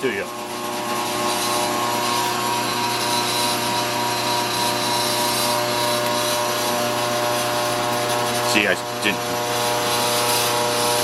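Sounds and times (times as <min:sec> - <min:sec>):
metal lathe running: 0:00.0 - 0:11.0.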